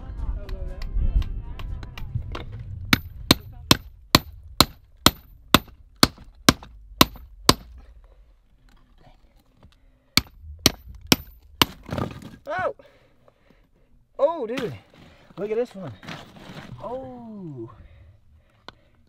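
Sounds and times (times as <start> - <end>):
hammer striking chisel: 2.9 - 7.7, 10.2 - 11.8.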